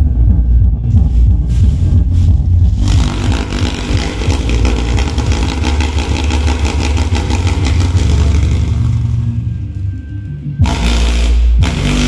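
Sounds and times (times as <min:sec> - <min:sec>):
heavy bass music from subwoofer: 0:00.0 - 0:12.0
harsh buzzing rattle: 0:02.8 - 0:09.4.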